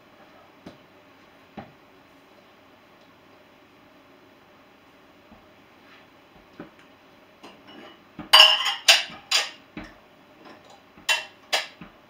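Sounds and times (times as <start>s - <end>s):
dishes and glassware clinking: 7.4s - 11.8s.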